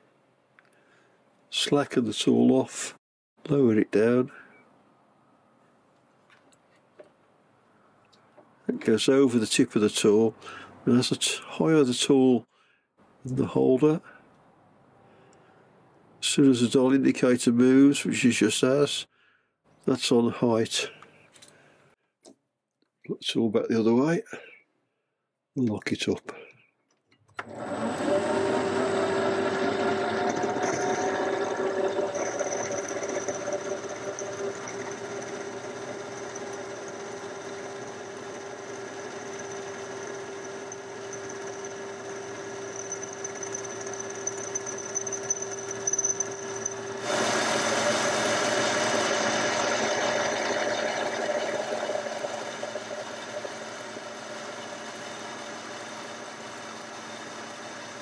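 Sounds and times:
lathe running: 27.4 - 58.0.

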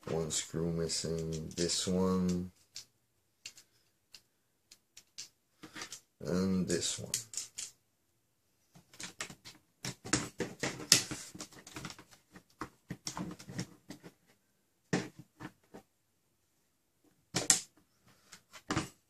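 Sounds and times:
plastic parts clicking and scraping: 0.9 - 6.1, 7.0 - 7.8, 8.8 - 14.3.

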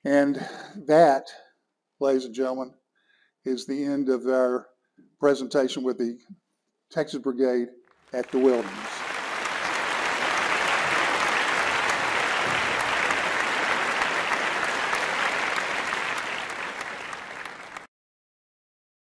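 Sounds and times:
audience applauding: 8.2 - 17.9.

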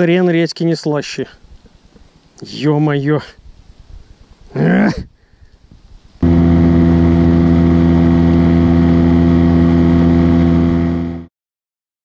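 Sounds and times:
boat motor running: 6.2 - 11.3.

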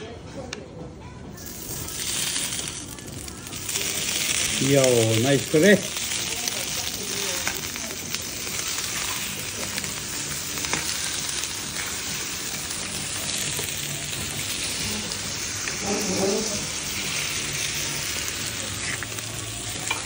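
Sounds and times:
eggs cracking: 1.4 - 5.1
steak and eggs sizzling on hot plate: 1.4 - 20.0.

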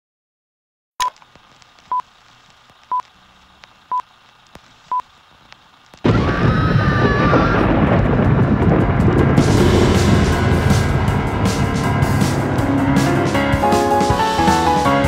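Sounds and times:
old film crackle and clicks: 1.0 - 6.1
rumbling music with high tone: 7.7 - 15.0.

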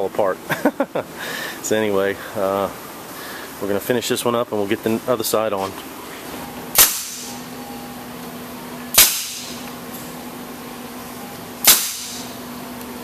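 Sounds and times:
nail gun shots: 6.7 - 7.4, 8.9 - 9.6, 11.6 - 12.3.

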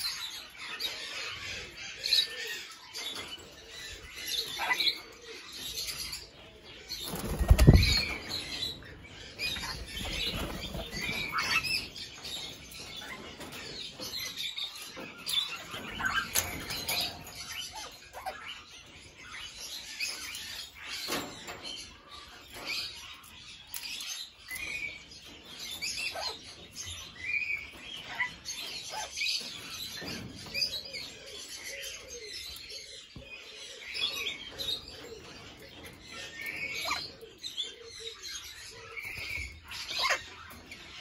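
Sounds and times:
parrots chirping and chattering: 0.0 - 41.0.

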